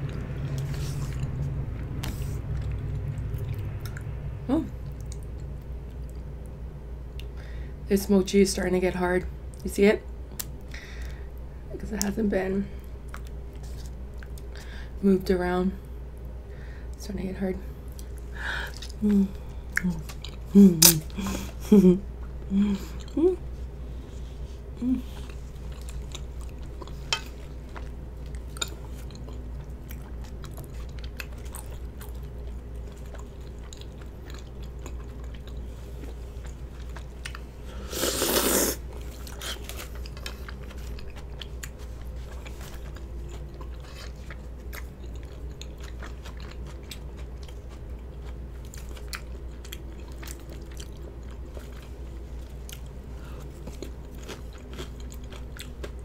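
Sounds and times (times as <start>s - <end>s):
close chewing: 0.0s - 4.2s, 17.9s - 21.6s, 25.0s - 56.0s
loud slurp from a spoon: 37.8s - 38.8s.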